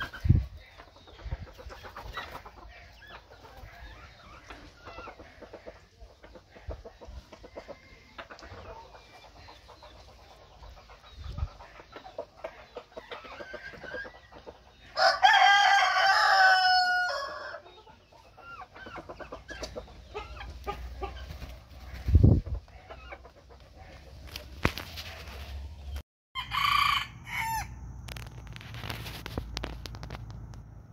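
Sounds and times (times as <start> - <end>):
hens clucking: 0.0 - 26.0
rooster crowing: 15.0 - 17.6, 26.4 - 27.8.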